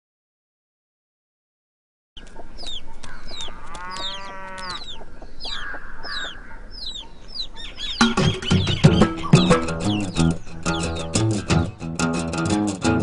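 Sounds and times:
chicken calling: 0:02.2 - 0:11.6
small birds chirping: 0:02.2 - 0:11.8.

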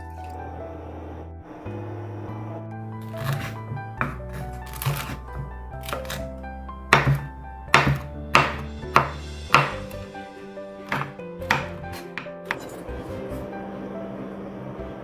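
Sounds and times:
background music: 0:00.0 - 0:15.0
knife chopping on wooden board: 0:03.1 - 0:06.2, 0:06.9 - 0:10.1, 0:10.8 - 0:13.4.

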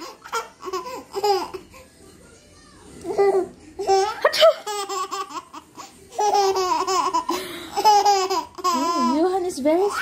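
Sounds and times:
baby laughing: 0:00.0 - 0:01.8, 0:03.1 - 0:09.2.

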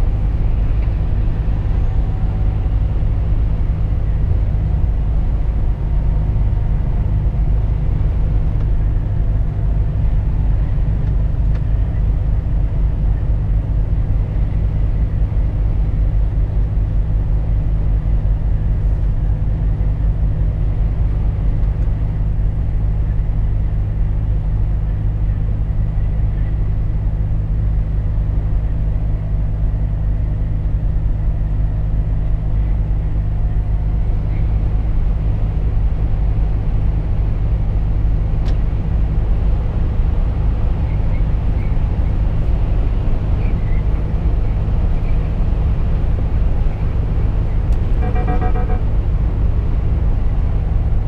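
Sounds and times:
diesel lorry engine droning: 0:00.0 - 0:51.0
tyre and road noise: 0:00.0 - 0:51.0
brief beep: 0:48.0 - 0:48.8.

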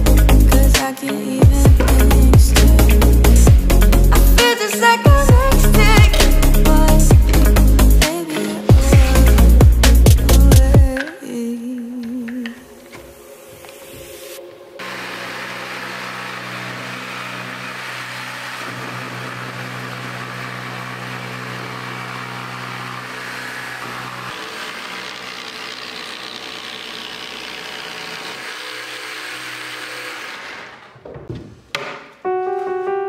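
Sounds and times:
jigsaw cutting plywood: 0:05.2 - 0:10.9, 0:14.8 - 0:31.1.

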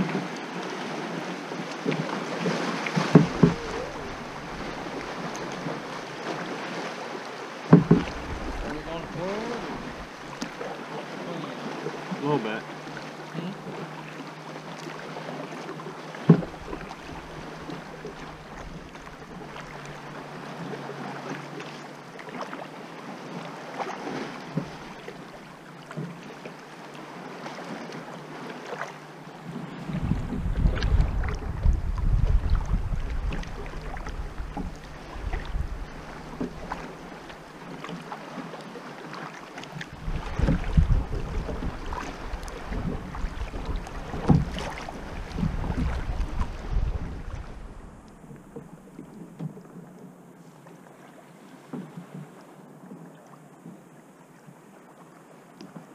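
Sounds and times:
water splashing around kayak: 0:00.0 - 0:55.9
wind buffeting microphone: 0:07.9 - 0:10.1, 0:29.6 - 0:37.3, 0:39.9 - 0:48.6.

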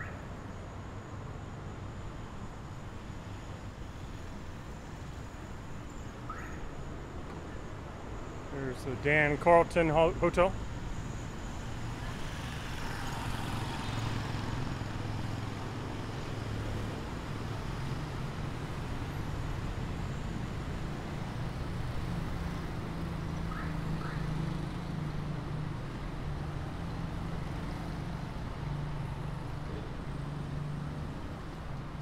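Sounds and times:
hum of traffic: 0:00.0 - 0:32.0
vehicle passing: 0:09.7 - 0:18.8.

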